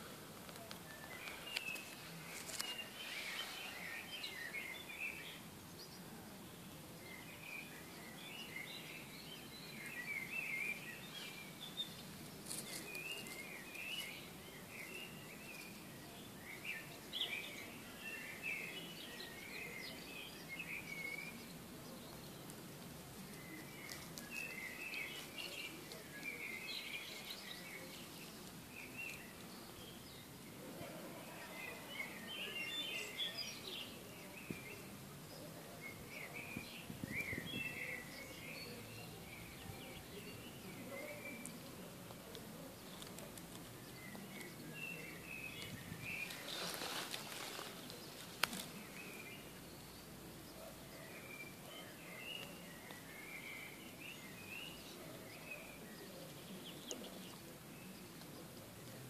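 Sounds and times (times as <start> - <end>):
faint background hiss: 0.0 - 59.0
small birds chirping: 0.0 - 59.0
faint sharp clicks: 0.3 - 2.8, 41.4 - 44.6, 48.2 - 48.8.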